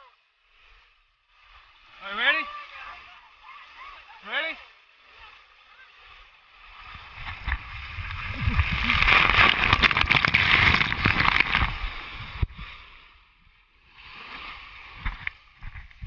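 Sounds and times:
water splashing on camera: 2.2 - 13.1
water rushing down slide: 5.2 - 12.6.

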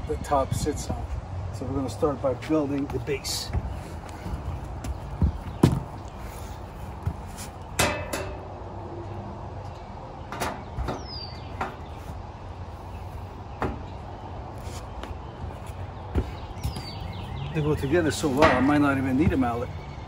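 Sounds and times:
sheet metal panels clanking: 7.7 - 8.5, 18.4 - 18.9.

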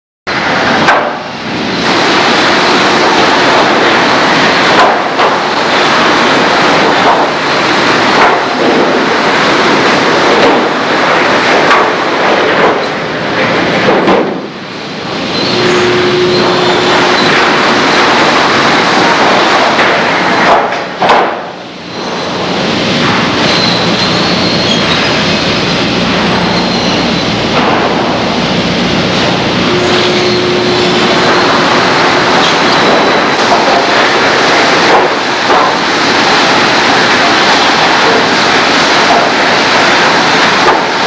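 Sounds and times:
sawmill machinery noise: 0.3 - 41.0
knocks and bangs: 8.1 - 14.6
short steady tone: 15.4 - 17.3, 29.7 - 31.5.

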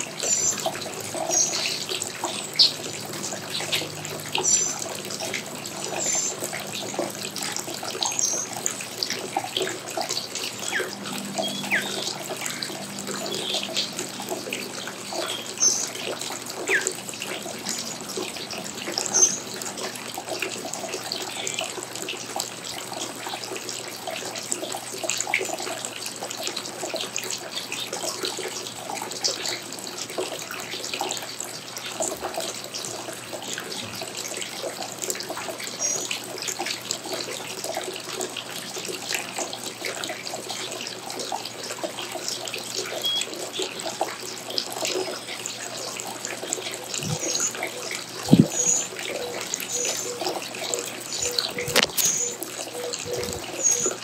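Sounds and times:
small birds chirping: 0.2 - 4.9, 47.0 - 47.7, 49.7 - 50.3, 51.0 - 54.0.

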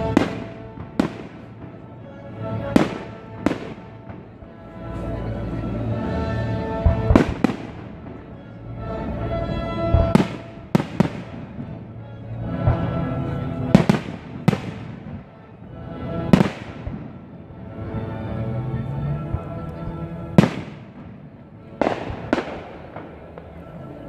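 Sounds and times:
firework bangs echoing: 0.0 - 4.4, 6.8 - 8.6, 9.8 - 15.5, 16.3 - 17.4, 20.3 - 24.0
classical music: 0.0 - 24.0.

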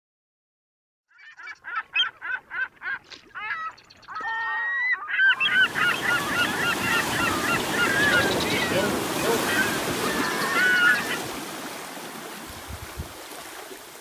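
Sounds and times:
birds calling: 1.1 - 12.5
small waves breaking on shore: 5.3 - 14.0.

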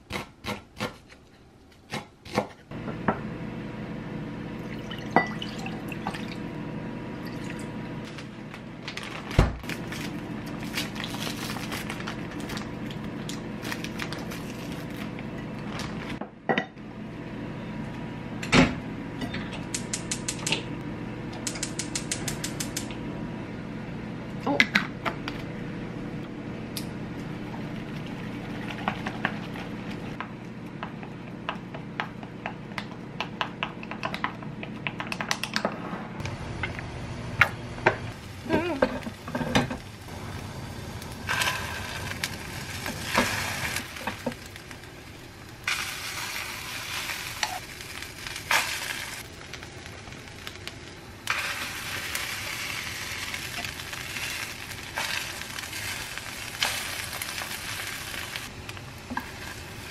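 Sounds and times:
gas stove igniter clicking: 21.4 - 23.0.

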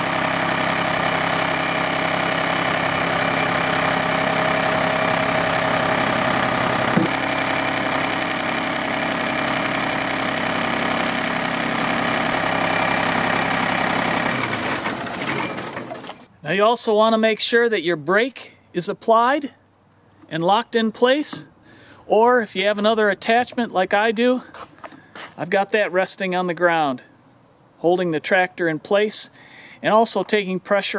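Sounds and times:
tractor diesel engine running: 0.0 - 16.3
front loader clunk: 6.8 - 7.4, 13.4 - 16.3.

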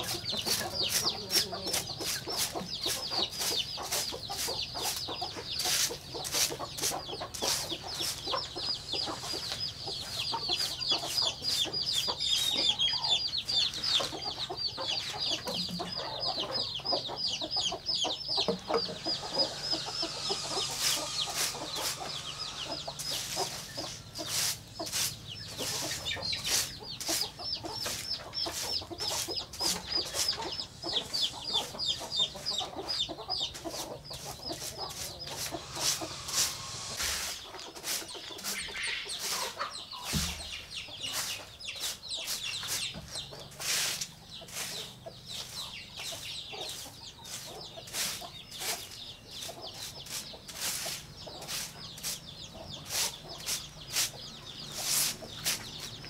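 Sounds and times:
broom sweeping dirt floor: 0.0 - 56.0
chickens clucking: 0.0 - 56.0
rapid high falling chirps: 18.0 - 24.4.

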